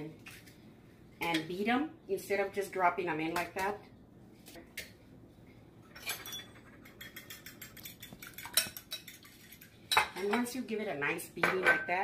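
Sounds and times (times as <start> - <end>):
utensil clinking against glass bowl: 6.0 - 10.5.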